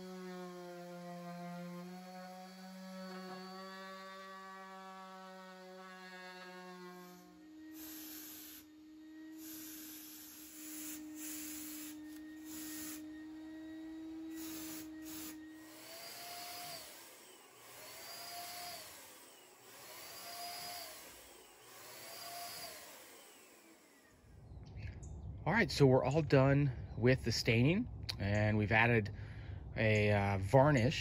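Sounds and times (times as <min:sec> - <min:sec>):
electric paint sprayer running: 0:00.0 - 0:24.4.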